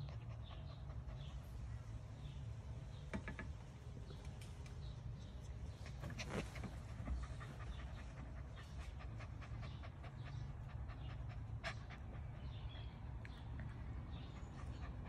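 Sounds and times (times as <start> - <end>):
puppy panting: 0.0 - 1.8, 5.2 - 15.0.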